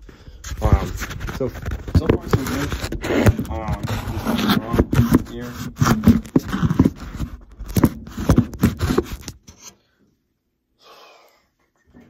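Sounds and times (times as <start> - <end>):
rapid scraping and clicking: 0.4 - 9.8.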